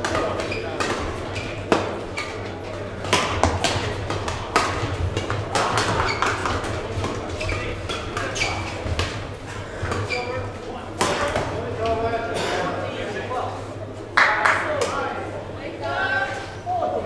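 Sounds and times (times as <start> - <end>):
shoes squeaking on court: 0.0 - 11.6
rackets striking shuttlecock: 3.0 - 8.3.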